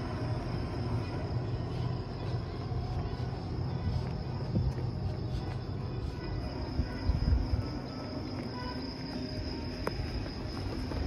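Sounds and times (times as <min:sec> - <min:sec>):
wind rumbling on microphone: 0:00.0 - 0:08.6
night insects chirring: 0:00.0 - 0:11.0.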